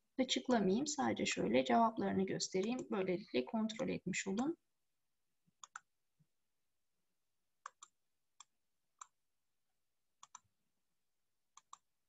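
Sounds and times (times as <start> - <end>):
computer mouse clicking: 2.6 - 2.9, 5.6 - 5.9, 7.6 - 9.2, 10.2 - 10.5, 11.5 - 11.9.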